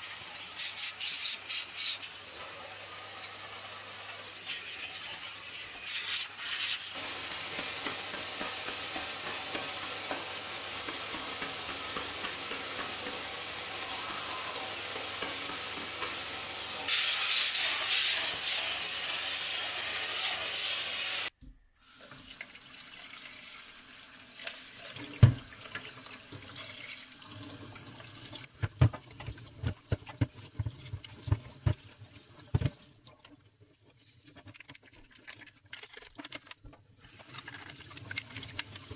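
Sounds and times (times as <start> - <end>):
water running in a metal sink: 0.0 - 38.9
vacuum cleaner hissing: 4.3 - 21.3
plastic bin knocking against sink: 25.2 - 25.5, 28.5 - 31.8
plastic bin scrubbed and rinsed: 28.4 - 38.9.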